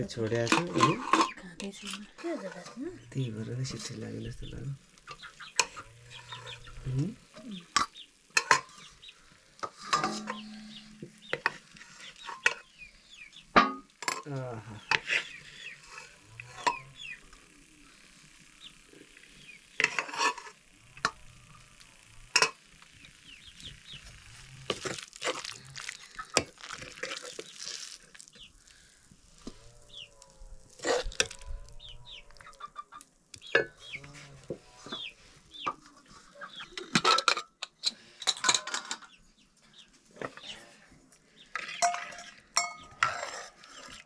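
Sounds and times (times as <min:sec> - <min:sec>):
chickens clucking: 0:00.0 - 0:13.8, 0:25.9 - 0:26.5, 0:30.8 - 0:37.4
metal spoon scraping a pot: 0:00.4 - 0:02.8, 0:05.1 - 0:07.0, 0:07.7 - 0:08.9, 0:09.6 - 0:12.8, 0:13.6 - 0:17.0, 0:19.8 - 0:21.2, 0:30.8 - 0:31.5, 0:41.5 - 0:44.0
food sizzling: 0:01.8 - 0:34.0
metal clinks: 0:41.7 - 0:43.2.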